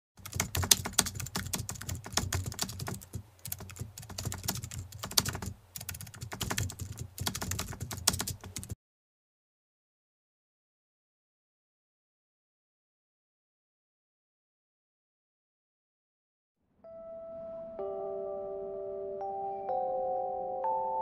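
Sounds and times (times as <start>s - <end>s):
keyboard typing clicks: 0.2s - 8.8s.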